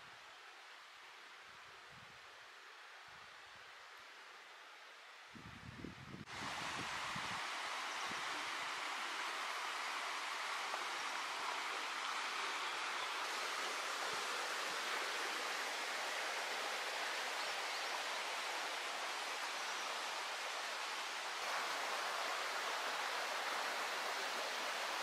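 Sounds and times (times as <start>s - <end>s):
river rushing over rocks: 6.3s - 25.0s.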